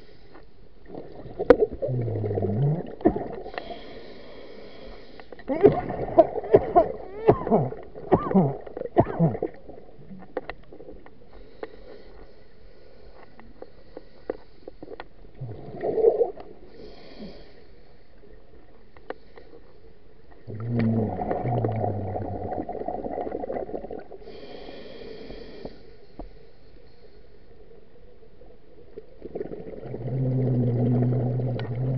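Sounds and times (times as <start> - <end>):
exhaled bubbles gurgling: 0.8 - 3.7, 5.5 - 11.0, 15.4 - 16.7, 20.4 - 24.3, 28.8 - 31.9
faint clicks: 4.9 - 5.5, 10.2 - 12.4, 13.1 - 15.3, 18.8 - 21.0.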